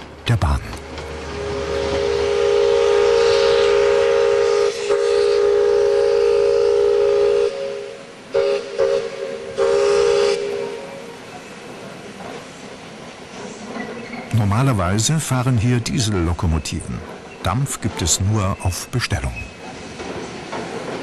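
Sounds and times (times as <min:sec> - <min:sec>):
steady steam hiss: 0:00.0 - 0:21.0
steam locomotive whistle: 0:01.2 - 0:11.1.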